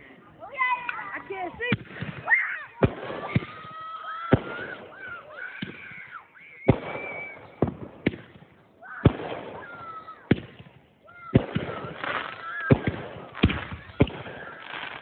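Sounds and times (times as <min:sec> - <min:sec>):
fireworks bangs: 0:00.5 - 0:15.0.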